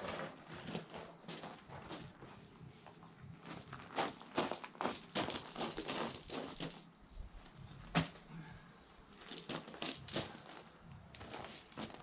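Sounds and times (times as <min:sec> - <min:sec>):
footsteps crunching on gravel: 0:03.4 - 0:06.9, 0:09.2 - 0:12.0.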